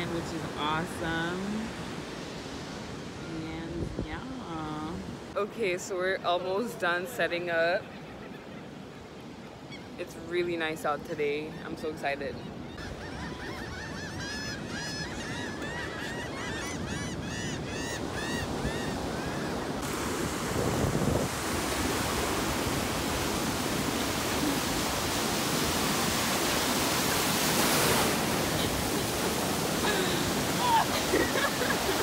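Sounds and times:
ocean waves breaking: 0:00.0 - 0:05.7, 0:13.9 - 0:32.0
wind on microphone: 0:19.8 - 0:32.0.

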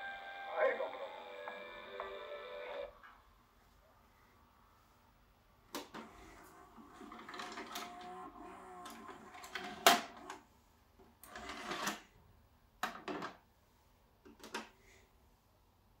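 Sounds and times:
tape mechanism whirring and clunking: 0:05.7 - 0:10.4
cassette eject whir: 0:06.9 - 0:10.4.

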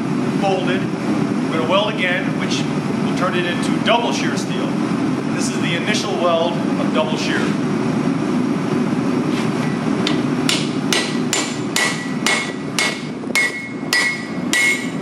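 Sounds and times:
steady low rumble: 0:00.0 - 0:15.0
hammer striking steel on anvil: 0:10.1 - 0:15.0.

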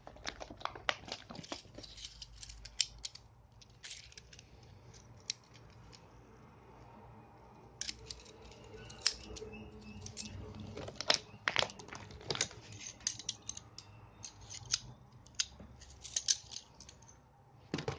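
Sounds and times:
metallic wrench clicks and snips: 0:07.8 - 0:10.3.

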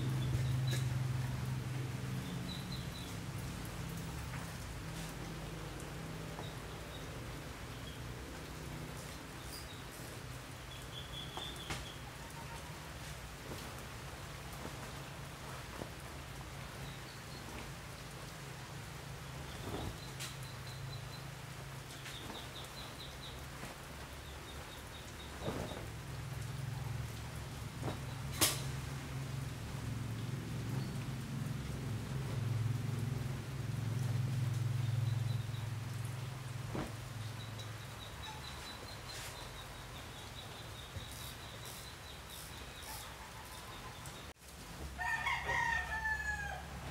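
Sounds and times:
short hissy rustles: 0:11.4 - 0:24.2, 0:25.0 - 0:29.3, 0:40.7 - 0:43.7
cloth rustling: 0:12.5 - 0:16.8, 0:19.3 - 0:20.6, 0:25.3 - 0:26.0, 0:27.0 - 0:29.0, 0:36.7 - 0:37.1.

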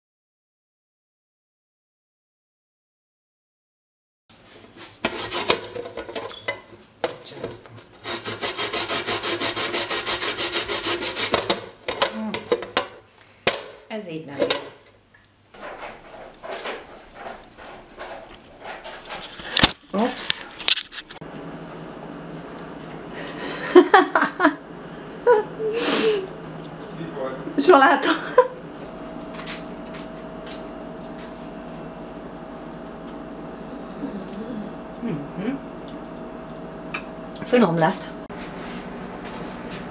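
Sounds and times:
steady mechanical hum: 0:04.3 - 0:39.9
potato grated on plastic grater: 0:05.0 - 0:05.7, 0:08.0 - 0:11.7.

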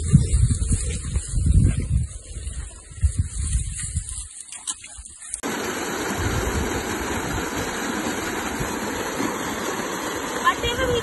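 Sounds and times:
waterfall rushing over rock: 0:05.4 - 0:11.0.

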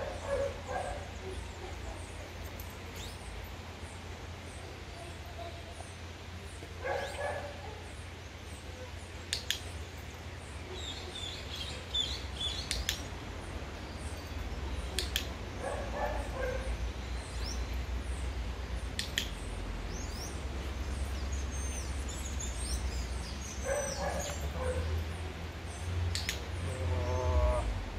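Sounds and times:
birds chirping: 0:00.0 - 0:27.9
dog-training clicker double clicks: 0:12.6 - 0:13.1, 0:14.9 - 0:15.4, 0:18.9 - 0:19.4, 0:26.1 - 0:26.5.

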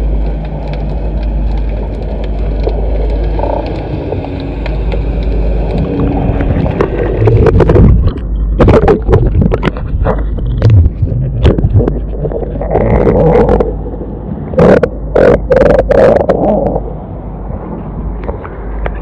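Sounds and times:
underwater rumble of moving water: 0:00.0 - 0:19.0
underwater clicks and knocks: 0:00.2 - 0:13.7.

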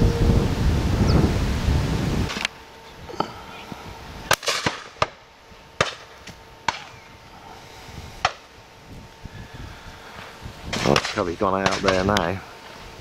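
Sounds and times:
shotgun shots: 0:04.3 - 0:05.2, 0:10.8 - 0:12.1.

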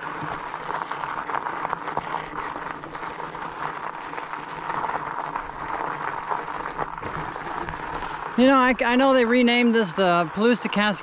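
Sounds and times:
bicycle tyres crunching on gravel: 0:00.0 - 0:11.0
small clicks and rattles: 0:00.0 - 0:11.0.

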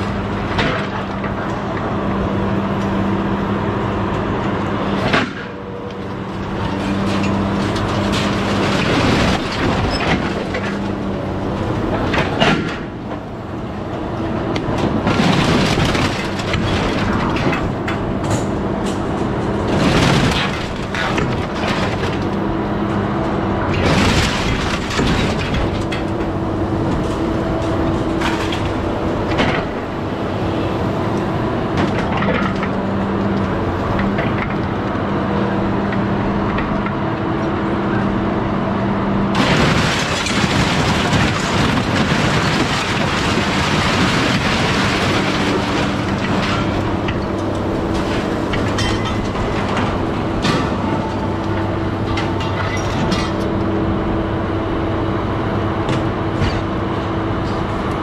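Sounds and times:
engine and hydraulics running: 0:00.0 - 0:58.0
crashing clatter of scrap: 0:06.1 - 0:11.1, 0:14.7 - 0:22.4, 0:23.7 - 0:26.3, 0:26.9 - 0:29.8, 0:39.3 - 0:53.6.

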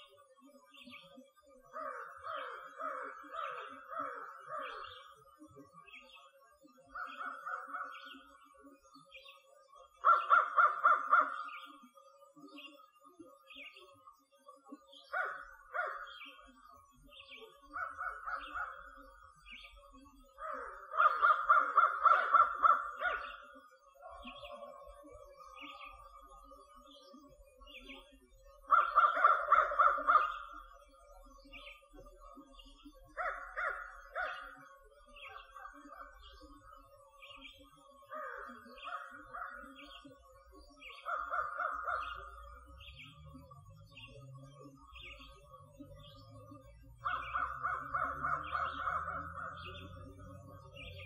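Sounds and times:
crows cawing: 0:01.7 - 0:05.1, 0:10.0 - 0:11.6, 0:15.1 - 0:16.2, 0:20.4 - 0:23.4, 0:28.7 - 0:30.6, 0:33.2 - 0:34.5, 0:38.1 - 0:39.6, 0:41.1 - 0:42.3, 0:47.0 - 0:50.0
small bird chirping: 0:38.5 - 0:51.0.

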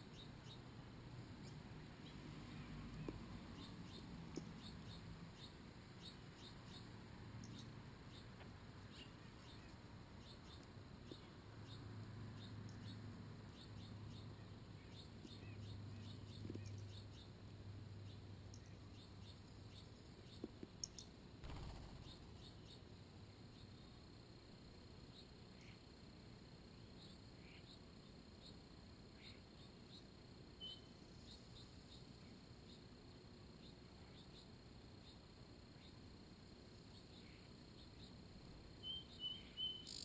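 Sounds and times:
low steady hum: 0:00.0 - 0:40.0.

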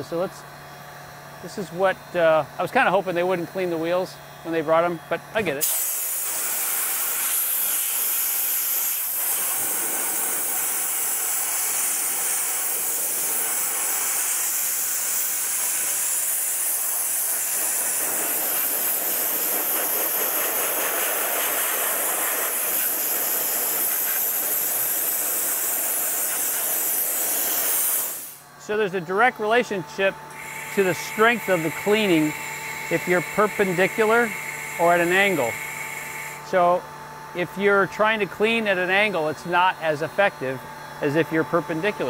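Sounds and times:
dry ice blasting gun hissing: 0:05.4 - 0:28.4, 0:30.3 - 0:36.8.

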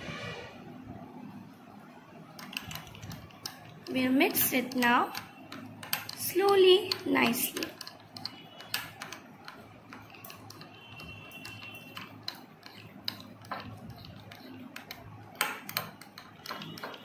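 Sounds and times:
metal spoon scraping glass bowl: 0:02.4 - 0:17.0.

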